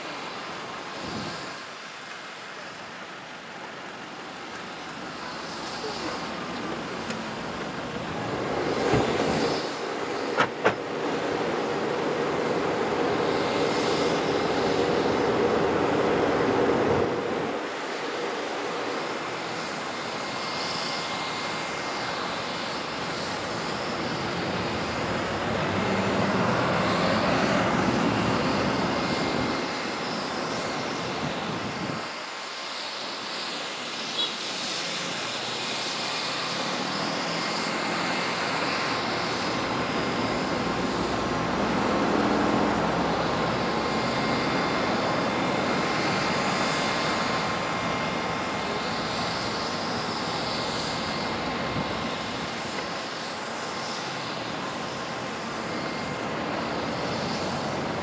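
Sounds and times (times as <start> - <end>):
jet aircraft rushing hum: 0.0 - 58.0
high whine: 4.5 - 32.0.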